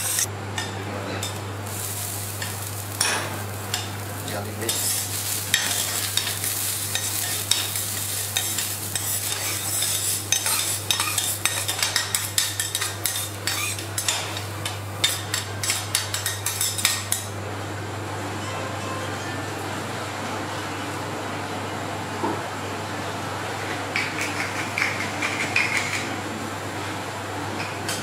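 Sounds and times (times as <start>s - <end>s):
metal spatulas scraping on griddle: 0.0s - 0.3s, 4.7s - 17.2s.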